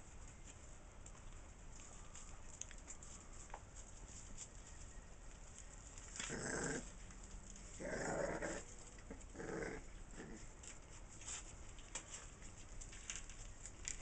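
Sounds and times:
puppies growling: 0:06.1 - 0:10.8.

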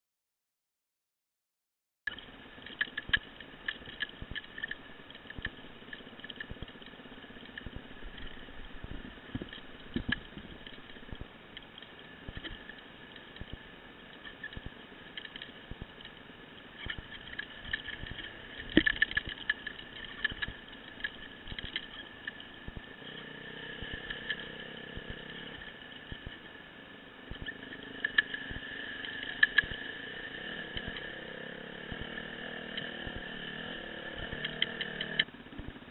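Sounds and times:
sharp clicks and knocks: 0:02.1 - 0:16.2, 0:16.8 - 0:22.9
dirt bike engine running: 0:22.7 - 0:26.4, 0:27.4 - 0:35.9.

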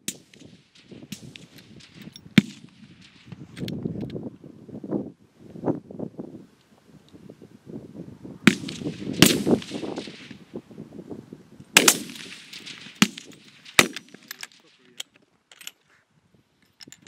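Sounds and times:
rifle shots with echo: 0:00.0 - 0:03.3, 0:08.4 - 0:10.4, 0:11.8 - 0:14.9.

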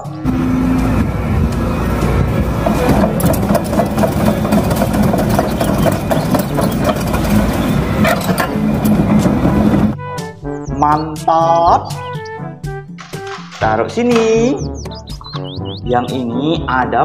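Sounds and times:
truck engine running: 0:00.0 - 0:10.0.

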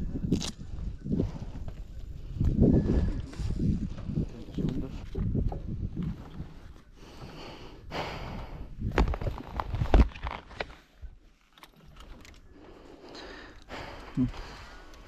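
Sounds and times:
forceful breaths and sniffs: 0:07.0 - 0:08.8.

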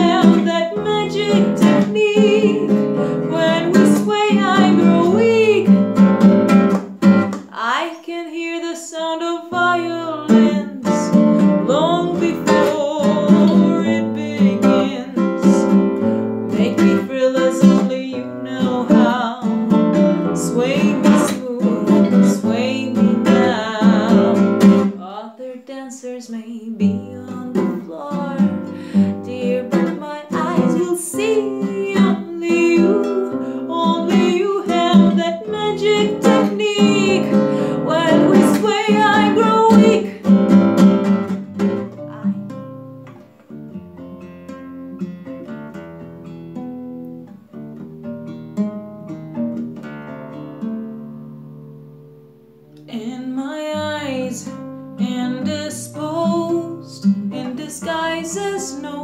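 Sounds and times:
woman singing: 0:00.0 - 0:06.0, 0:07.4 - 0:40.4, 0:41.7 - 0:42.7, 0:52.8 - 0:59.0
classical guitar strumming: 0:00.0 - 0:25.0, 0:26.2 - 0:59.0.

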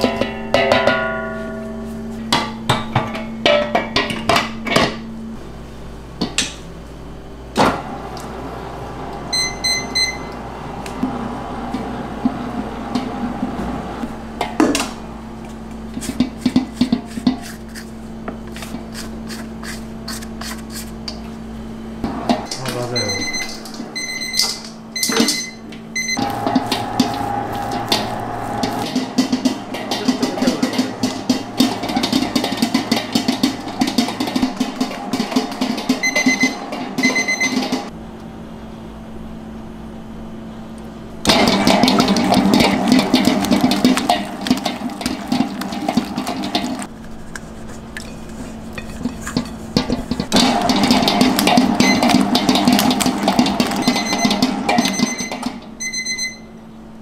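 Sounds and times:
dough slapping against steel bowl: 0:15.9 - 0:20.8, 0:28.8 - 0:37.9, 0:41.3 - 0:55.6.

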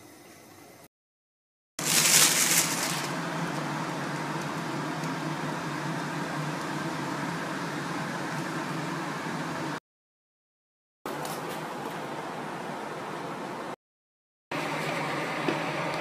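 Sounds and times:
mechanical hum: 0:01.8 - 0:09.8, 0:11.1 - 0:13.8, 0:14.5 - 0:16.0.

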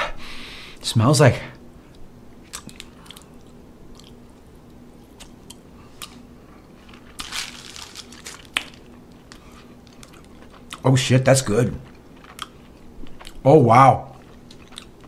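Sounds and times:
wet mouth clicks and smacks: 0:02.5 - 0:04.2.

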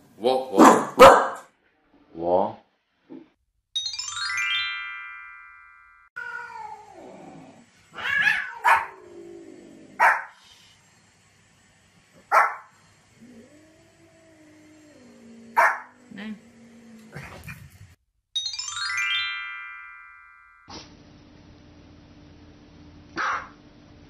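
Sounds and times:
dog barking: 0:00.6 - 0:01.5, 0:08.3 - 0:09.0, 0:10.0 - 0:10.4, 0:12.3 - 0:12.7, 0:15.6 - 0:15.9, 0:23.2 - 0:23.6
bright chime: 0:03.8 - 0:06.1, 0:18.4 - 0:20.7.

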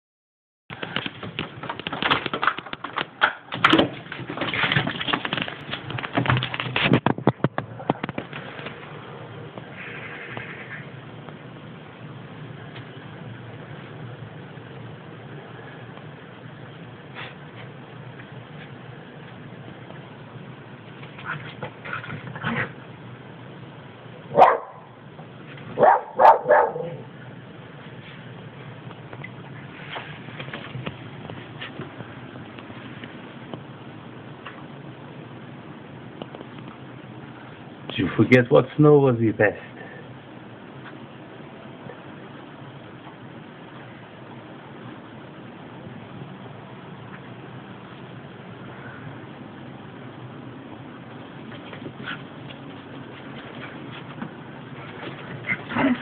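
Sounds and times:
steady outdoor hiss: 0:00.7 - 0:56.0
dogs scrambling across hard floor: 0:01.0 - 0:03.0, 0:03.6 - 0:07.0
back door opening: 0:01.1 - 0:07.0
small dogs barking: 0:24.3 - 0:24.9, 0:25.8 - 0:27.2.

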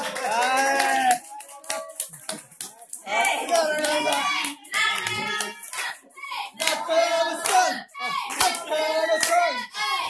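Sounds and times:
hands clapping in time: 0:00.0 - 0:06.0, 0:08.3 - 0:09.4
group of voices singing: 0:03.0 - 0:10.0.

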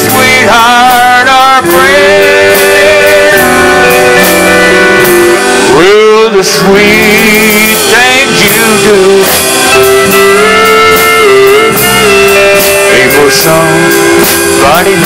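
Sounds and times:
electric guitar: 0:00.0 - 0:15.0
man singing: 0:00.0 - 0:15.0.

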